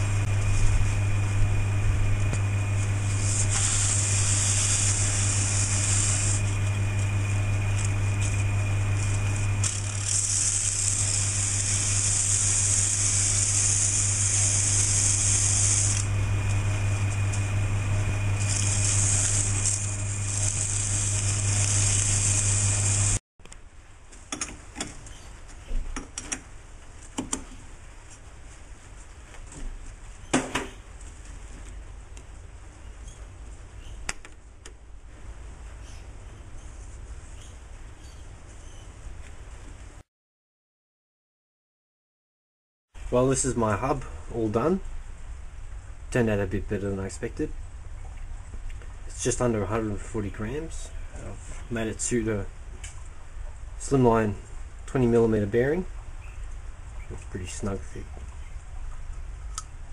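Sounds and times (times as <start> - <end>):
metal lathe humming: 0.0 - 23.2
abrasive cloth hissing on metal: 3.0 - 6.5, 10.0 - 16.0.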